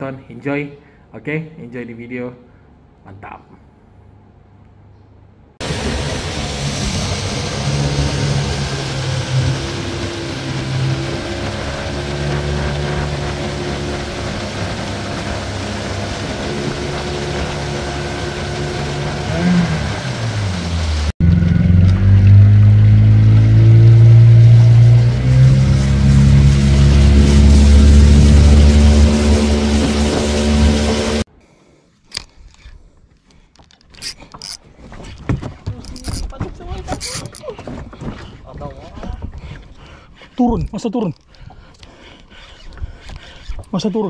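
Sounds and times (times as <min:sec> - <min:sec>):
wind and water hiss: 0:05.6 - 0:21.1, 0:23.9 - 0:31.3
boat engine running: 0:05.6 - 0:31.3.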